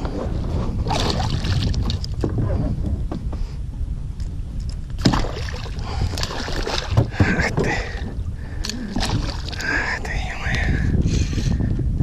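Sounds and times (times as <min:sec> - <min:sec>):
water splashing against boat: 0:00.0 - 0:02.5, 0:05.0 - 0:10.0
low rumble: 0:00.0 - 0:12.0.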